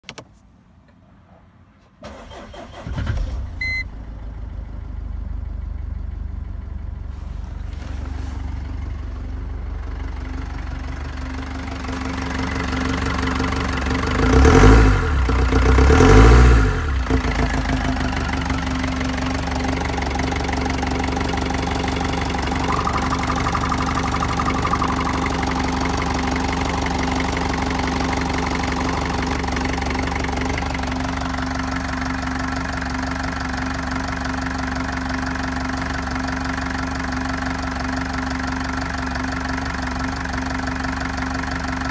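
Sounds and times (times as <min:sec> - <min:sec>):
diesel engine starting: 0:02.0 - 0:41.9
short beep: 0:03.6 - 0:03.9, 0:21.8 - 0:27.0
diesel engine idling: 0:03.6 - 0:16.1, 0:16.7 - 0:41.9
engine revving: 0:14.0 - 0:18.4.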